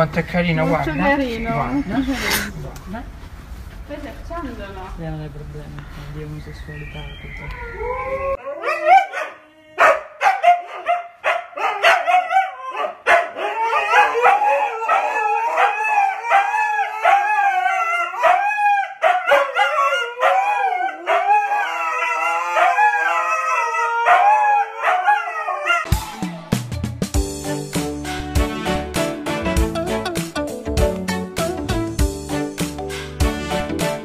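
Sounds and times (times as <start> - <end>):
dog howling: 7.5 - 10.9, 11.6 - 26.0.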